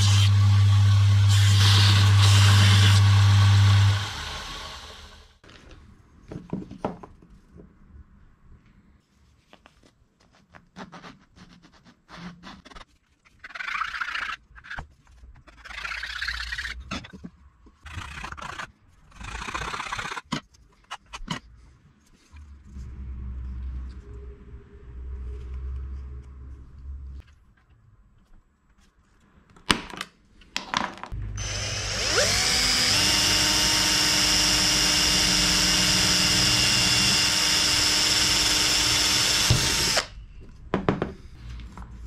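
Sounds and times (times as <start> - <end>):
power tool humming: 0.0 - 5.3, 31.3 - 40.1.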